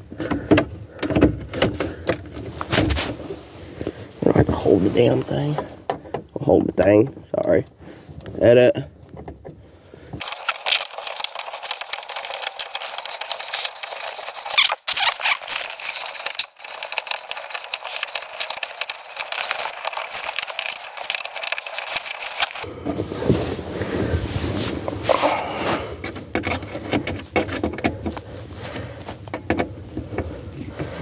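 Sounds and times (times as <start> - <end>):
clothing rubbing against microphone: 2.4 - 5.8, 12.0 - 31.0.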